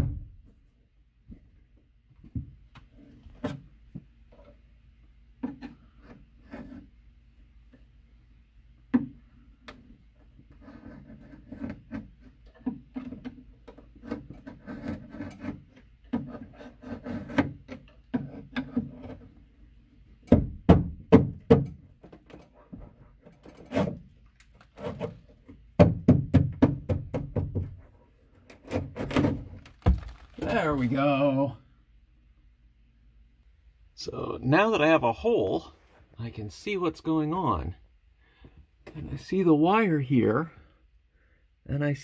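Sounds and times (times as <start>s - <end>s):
hand saw rasping through drywall: 14.0s - 15.6s, 16.2s - 17.6s.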